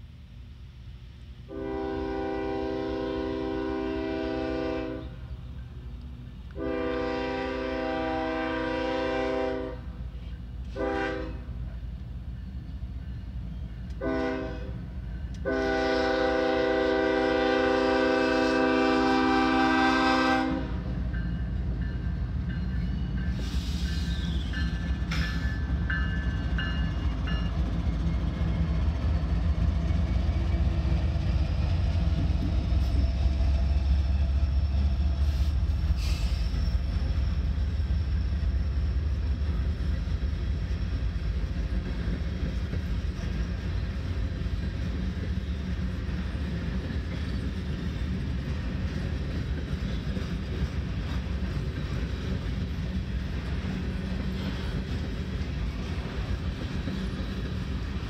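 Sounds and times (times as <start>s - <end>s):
locomotive air horn blasts: 1.5s - 5.2s, 6.6s - 10.0s, 10.7s - 11.6s, 14.0s - 14.8s, 15.4s - 20.9s.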